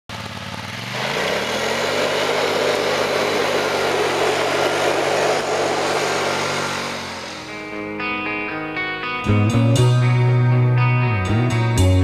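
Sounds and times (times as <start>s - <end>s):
tyres on gravel: 0.1s - 7.7s
quad bike engine running: 0.1s - 7.8s
rushing noise: 1.0s - 8.0s.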